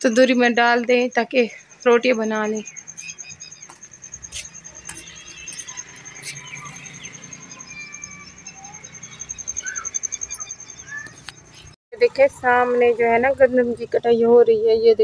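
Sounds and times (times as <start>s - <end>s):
bird chirps: 0.0s - 11.8s
insect trilling: 0.3s - 11.6s.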